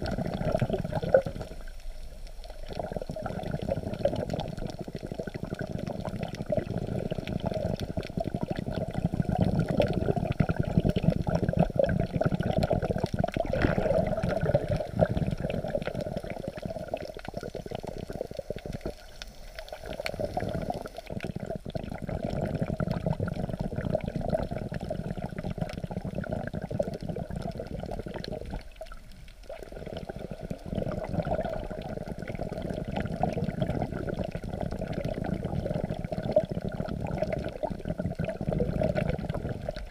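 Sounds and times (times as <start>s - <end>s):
muffled underwater rush: 0.0s - 39.9s
faint crackling: 12.1s - 21.4s.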